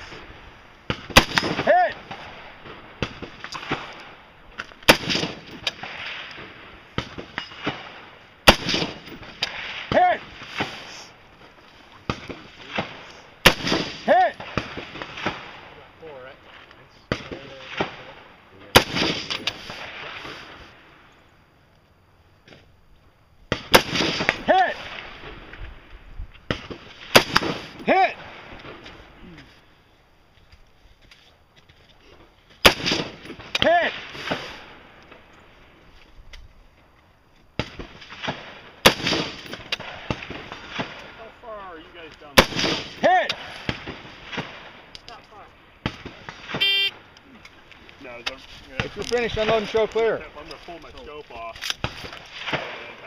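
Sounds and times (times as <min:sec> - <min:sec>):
rifle shots echoing: 0:00.0 - 0:10.9, 0:12.0 - 0:15.8, 0:17.1 - 0:20.6, 0:23.5 - 0:25.5, 0:32.6 - 0:34.8, 0:37.6 - 0:44.9
faint cracks: 0:41.9 - 0:53.0.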